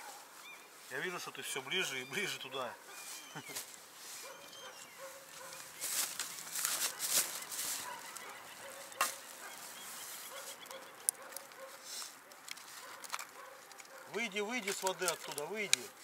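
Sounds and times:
faint animal calls: 1.4 - 5.8
woven sack rustling: 2.9 - 16.0.

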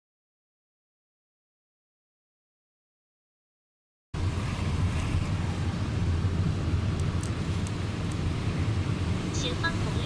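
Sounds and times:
car interior rumble: 4.2 - 10.0
tyres hissing on wet road: 4.2 - 10.0.

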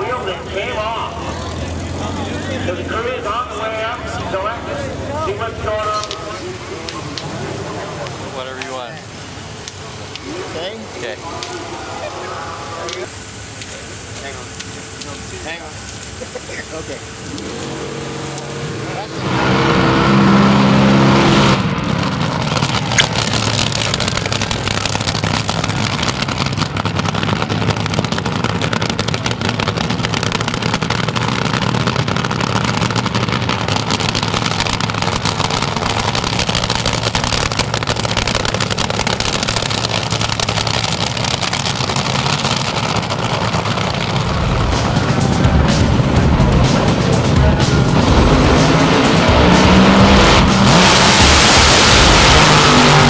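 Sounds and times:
supercharged engine revving: 12.0 - 53.0
sharp crack: 22.1 - 45.8.

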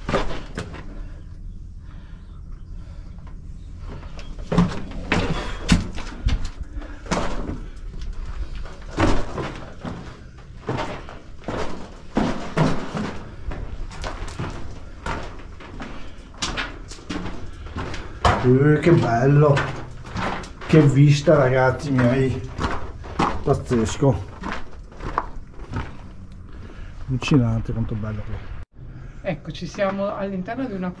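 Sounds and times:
footsteps crunching on rock: 4.5 - 26.5.

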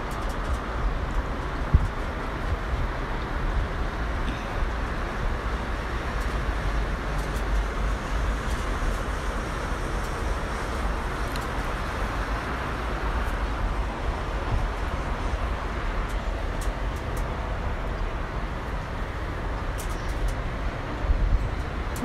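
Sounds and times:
distant road traffic: 0.0 - 22.0
wind rumble on microphone: 0.0 - 22.0.

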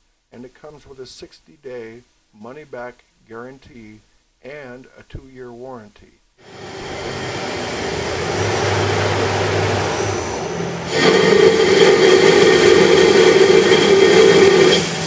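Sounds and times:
high ringing tones: 6.4 - 15.0
lathe turning metal: 6.4 - 15.0
coolant flowing: 10.9 - 15.0.

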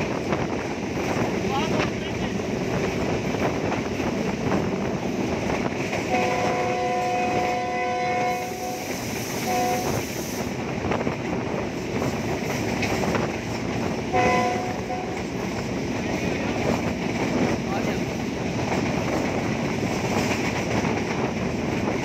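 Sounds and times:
train running noise: 0.0 - 22.0
locomotive horn two-note chord: 14.1 - 15.2.

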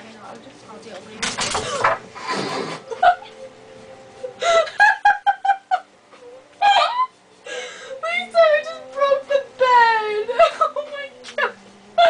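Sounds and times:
women laughing: 2.8 - 3.4, 4.4 - 6.0, 6.6 - 7.2, 9.7 - 12.0
shriek of laughter: 6.6 - 7.2.

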